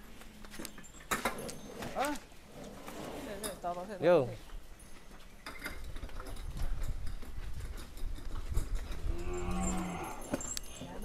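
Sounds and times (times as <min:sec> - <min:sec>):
cow mooing: 0:09.1 - 0:10.3.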